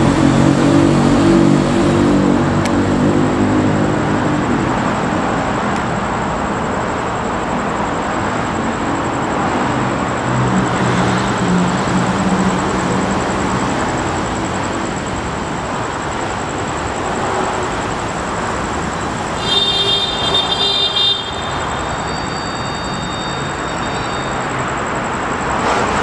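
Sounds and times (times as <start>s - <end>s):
traffic rumble: 0.0s - 26.0s
shrill high-pitched tone: 19.4s - 24.5s.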